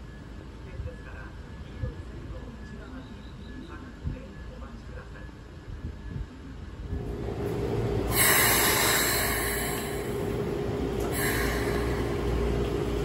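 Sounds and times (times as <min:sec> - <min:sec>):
standing train hum: 0:00.0 - 0:13.0
compressed air hiss from train: 0:08.1 - 0:13.0.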